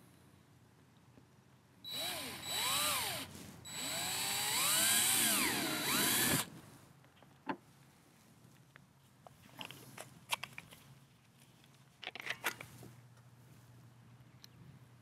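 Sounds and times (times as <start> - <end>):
power drill boring: 1.9 - 6.5.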